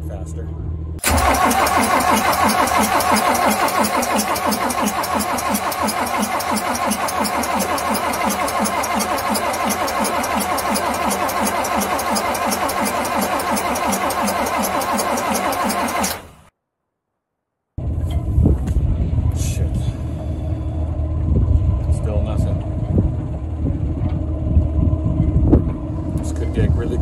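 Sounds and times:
diesel engine cranking by starter: 1.0s - 16.5s.

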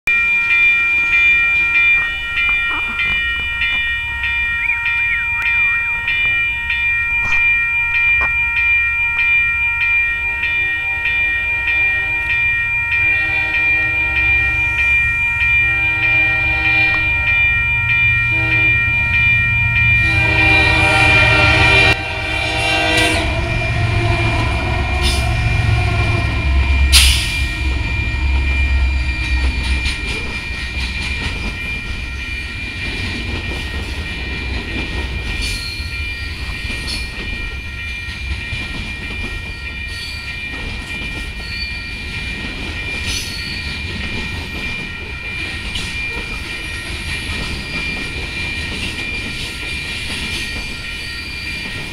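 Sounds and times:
crossing signal ringing: 0.0s - 51.9s
train wheels clickety-clack: 1.6s - 3.9s, 20.9s - 26.2s, 26.9s - 28.5s, 29.1s - 51.9s
locomotives rumbling past: 10.1s - 51.9s
train air horn: 13.0s - 14.4s, 15.7s - 17.3s, 18.3s - 18.8s, 20.0s - 28.4s.

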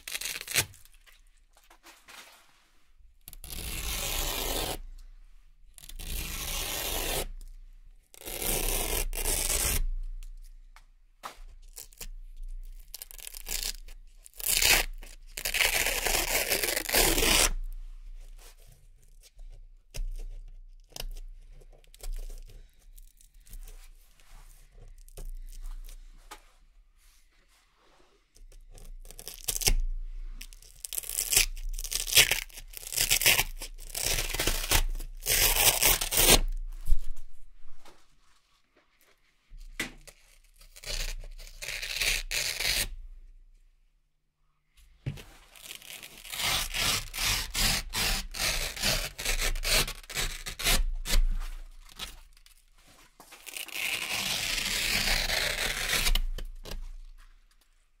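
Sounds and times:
velcro ripping: 0.0s - 1.2s, 3.3s - 4.8s, 5.8s - 7.4s, 8.1s - 9.9s, 12.7s - 17.7s, 28.8s - 37.4s, 40.0s - 43.0s, 45.4s - 52.7s, 53.4s - 57.1s.

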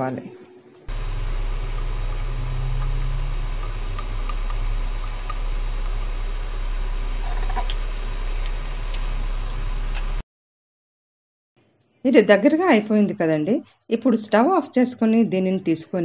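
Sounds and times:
liquid bubbling in a pan: 0.9s - 10.2s
low hum: 0.9s - 10.2s.

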